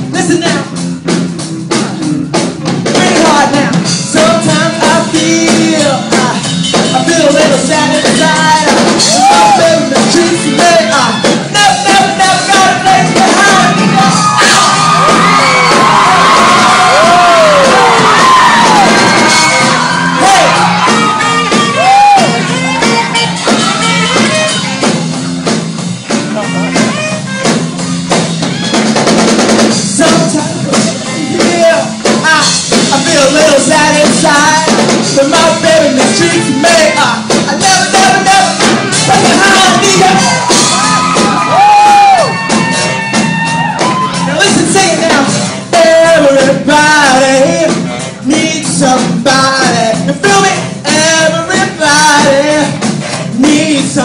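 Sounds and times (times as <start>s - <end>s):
live rock band playing: 0.0s - 54.0s
person singing: 1.6s - 15.8s, 29.8s - 54.0s.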